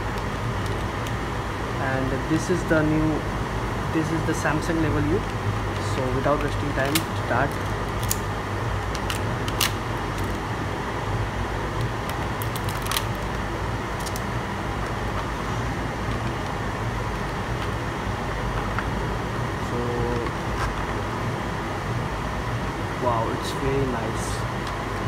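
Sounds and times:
steady low hum: 0.0s - 25.0s
plastic packaging crinkling: 12.2s - 13.4s.

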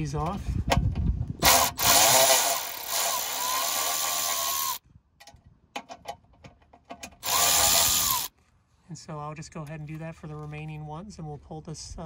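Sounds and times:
electric ratchet motor whine: 1.4s - 4.8s, 7.2s - 8.3s.

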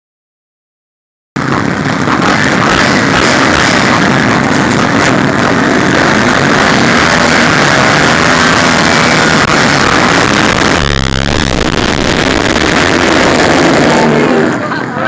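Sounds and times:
dirt bike engines revving: 1.4s - 15.0s.

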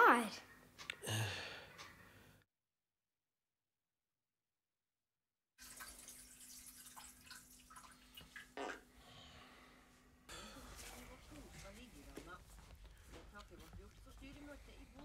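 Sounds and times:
small drips and ticks: 5.6s - 8.8s.

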